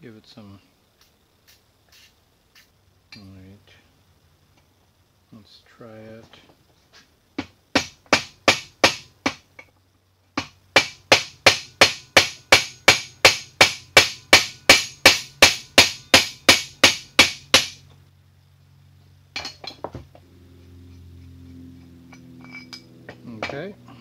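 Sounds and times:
hammer striking steel spanner: 10.4s - 17.8s, 19.4s - 19.9s, 21.8s - 23.8s
light metal clinks: 19.4s - 19.9s, 20.9s - 23.8s.

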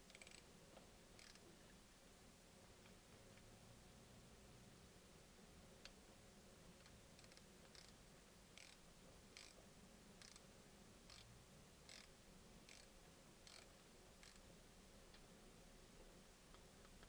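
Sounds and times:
ratchet pawl clicking: 0.1s - 0.4s, 1.2s - 1.4s, 6.8s - 8.0s, 8.6s - 8.8s, 9.4s - 9.6s, 10.2s - 10.4s, 11.1s - 11.3s, 11.9s - 12.1s, 12.7s - 14.4s.

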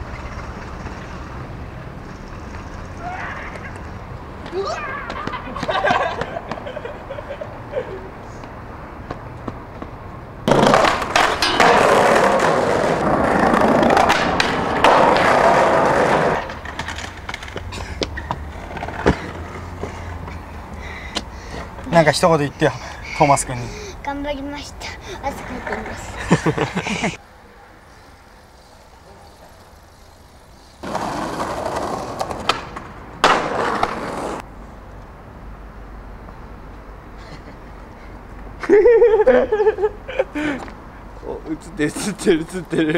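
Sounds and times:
skateboard wheels rolling on pavement: 0.0s - 37.1s
skateboard clacks: 9.1s - 19.9s, 30.8s - 34.4s
loud skateboard hit: 10.5s - 17.0s, 30.8s - 34.4s.

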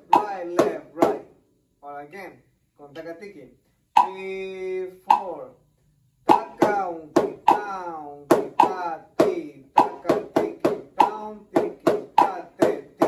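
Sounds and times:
drumsticks striking practice pad: 0.0s - 1.3s, 4.0s - 4.3s, 6.3s - 13.0s.

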